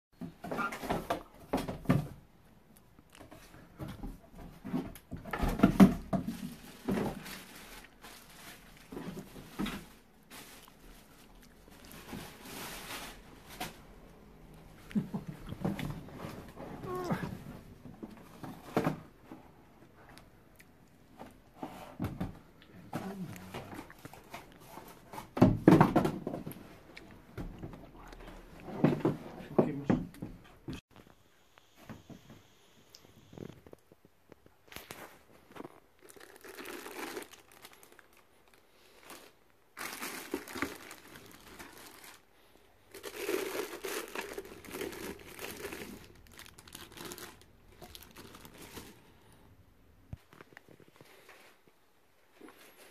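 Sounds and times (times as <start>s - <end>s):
cardboard rustling and scraping: 3.3s - 14.0s
cardboard rustling and knocks: 24.4s - 26.6s.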